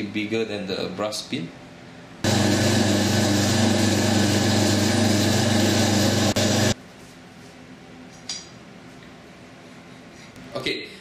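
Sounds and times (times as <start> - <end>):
drill press boring steel: 2.3 - 6.8.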